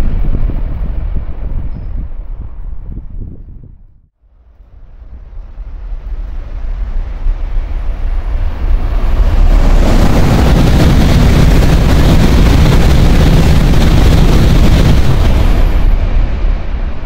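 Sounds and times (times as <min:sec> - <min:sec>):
high-speed train rushing past: 0:04.2 - 0:17.0.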